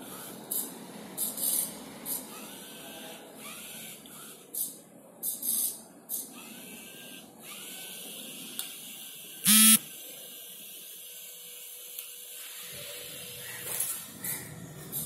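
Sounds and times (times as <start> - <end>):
short buzzing beep: 9.5 - 9.9.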